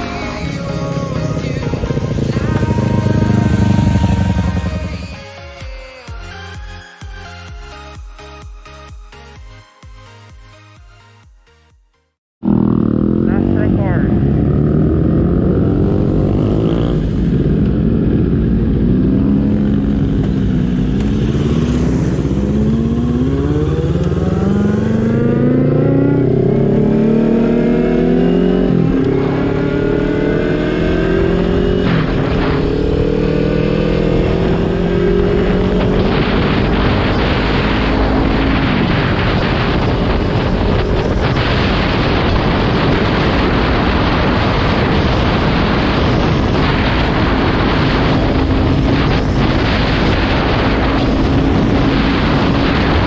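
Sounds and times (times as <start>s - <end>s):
motorcycle engine accelerating: 0.0s - 5.2s, 12.4s - 53.0s
wind buffeting microphone: 30.4s - 53.0s.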